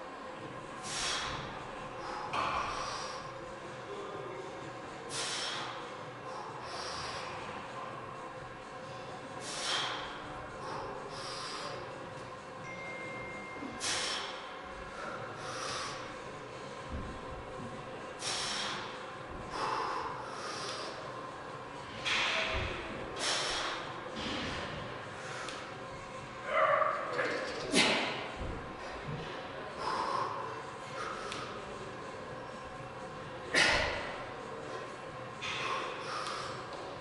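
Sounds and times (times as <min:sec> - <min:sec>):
man breathing hard: 0:00.8 - 0:03.5, 0:05.1 - 0:07.7, 0:09.4 - 0:12.0, 0:13.6 - 0:16.4, 0:18.1 - 0:21.2, 0:23.1 - 0:24.0, 0:25.1 - 0:25.8, 0:29.7 - 0:31.7, 0:35.4 - 0:36.8.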